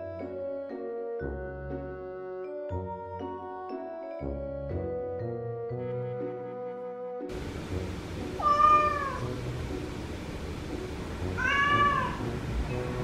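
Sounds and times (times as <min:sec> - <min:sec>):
background music: 0:00.0 - 0:13.0
cat meowing: 0:08.4 - 0:09.4, 0:11.3 - 0:12.3.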